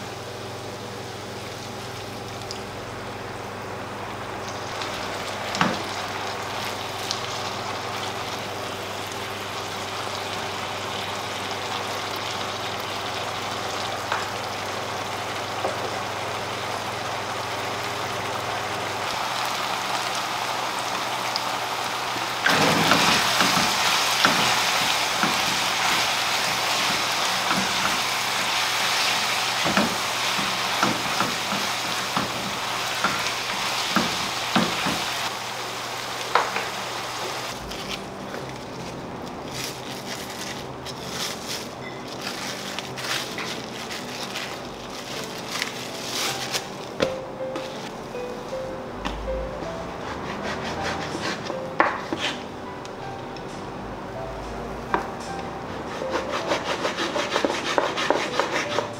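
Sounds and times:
food sizzling in frying pan: 0:00.0 - 0:37.9
wooden spatula scraping pan: 0:52.1 - 0:52.4.

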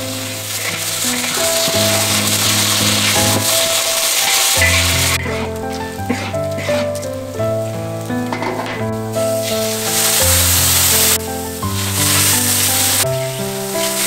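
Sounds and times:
oil sizzling in a wok: 0:00.0 - 0:14.0
spatula stirring in a wok: 0:00.1 - 0:07.1.

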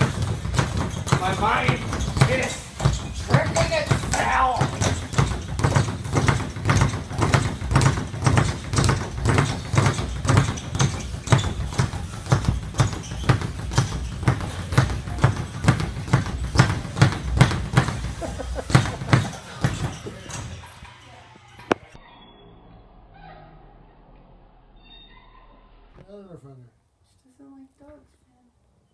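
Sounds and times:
speed bag being punched: 0:00.0 - 0:20.8.

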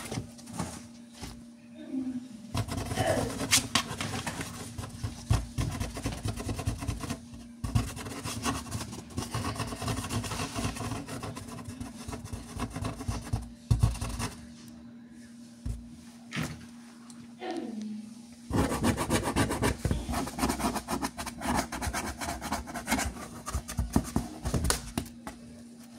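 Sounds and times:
faint low hum: 0:00.0 - 0:25.9
claws scratching cardboard: 0:02.6 - 0:14.5, 0:18.5 - 0:24.7.

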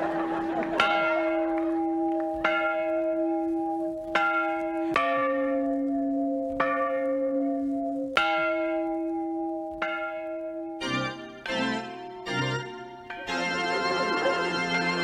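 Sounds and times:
church bells tolling: 0:00.0 - 0:15.0
lower-pitched bell: 0:00.8 - 0:15.0.

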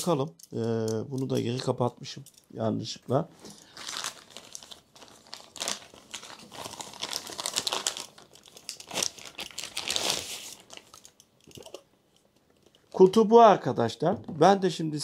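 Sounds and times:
gift wrapping crinkling and ripping: 0:03.4 - 0:11.2.

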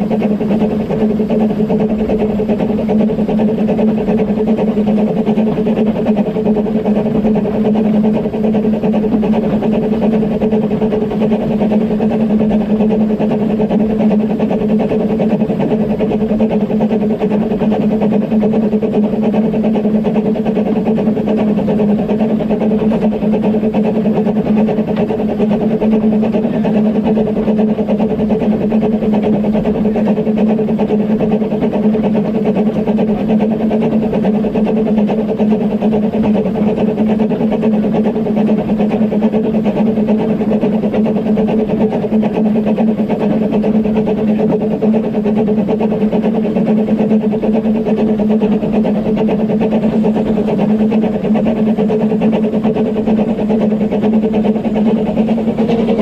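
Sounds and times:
steam train drone: 0:00.0 - 0:56.0
low humming: 0:39.8 - 0:56.0.

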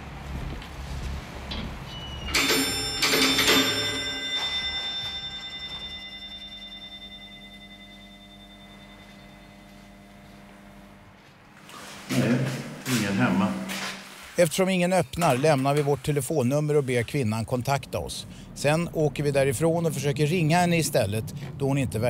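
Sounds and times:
doorbell chime ringing: 0:02.2 - 0:10.6.

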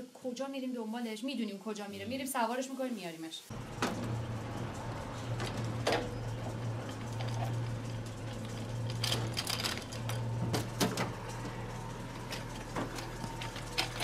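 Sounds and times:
steady low hum: 0:03.5 - 0:14.0
metal frame clanking: 0:03.6 - 0:14.0.

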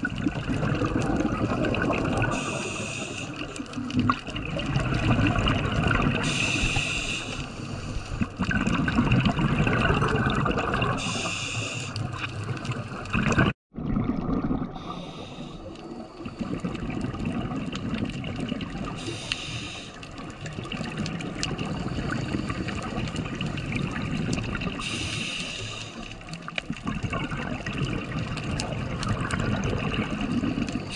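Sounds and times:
bubbles rumbling and gurgling: 0:00.0 - 0:30.9
regulator inhalation hiss: 0:02.3 - 0:03.6, 0:06.2 - 0:08.1, 0:11.0 - 0:12.0, 0:14.8 - 0:16.4, 0:19.0 - 0:20.1, 0:24.8 - 0:26.2.

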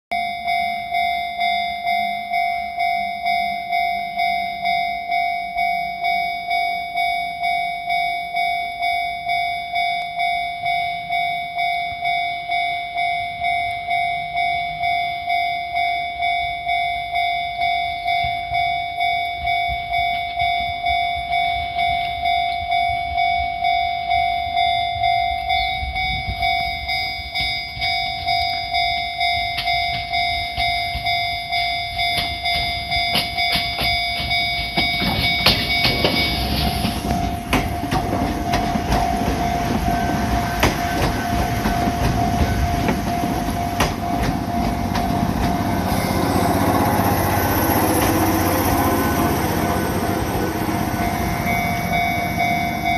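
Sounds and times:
level-crossing warning bell ringing: 0:00.1 - 0:52.9
train wheels clattering over rail joints: 0:29.6 - 0:52.9.

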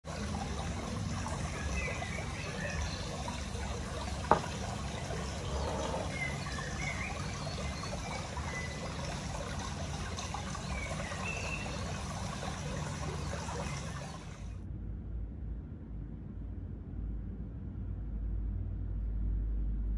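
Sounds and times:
water trickling: 0:00.0 - 0:14.6.

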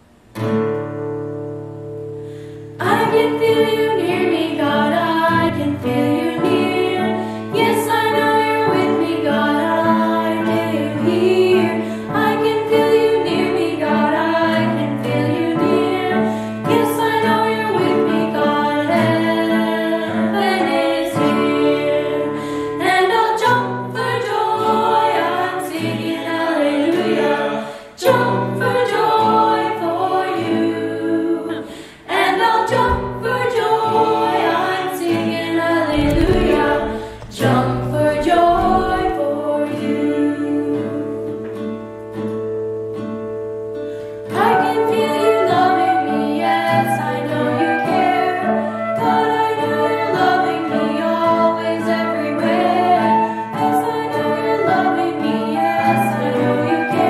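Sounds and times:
acoustic guitar: 0:00.0 - 0:57.0
piano: 0:00.0 - 0:57.0
girl and boy singing: 0:02.8 - 0:41.6, 0:44.3 - 0:57.0
flute: 0:44.3 - 0:57.0.

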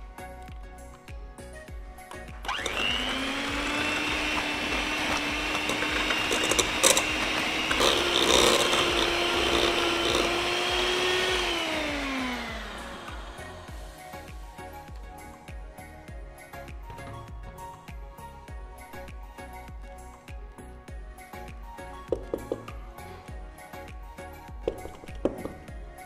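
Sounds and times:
electric hand mixer whining: 0:02.1 - 0:14.3
mixer clicks: 0:02.4 - 0:13.4.

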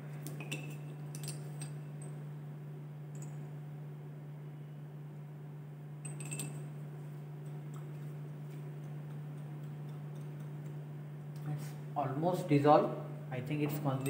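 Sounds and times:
steady low hum: 0:00.0 - 0:14.0
glass clinking: 0:00.4 - 0:02.1, 0:06.0 - 0:06.6.

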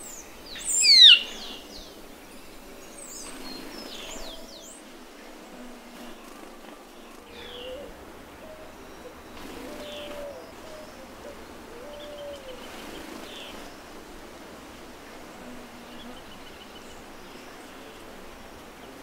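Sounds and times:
low whistled bird hoots: 0:07.4 - 0:12.7.

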